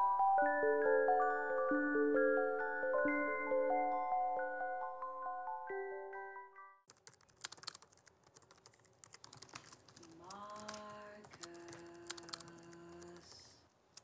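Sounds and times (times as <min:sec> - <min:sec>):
laptop keyboard typing: 0:06.9 - 0:14.0.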